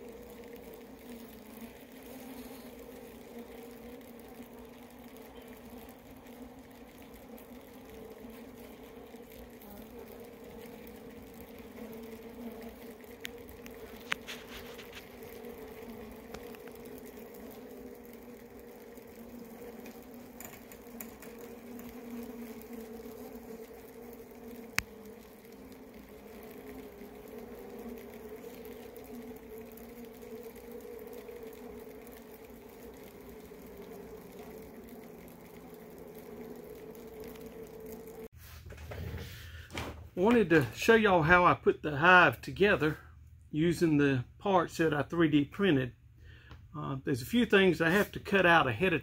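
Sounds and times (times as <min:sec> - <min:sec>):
bees humming: 0:00.0 - 0:38.3.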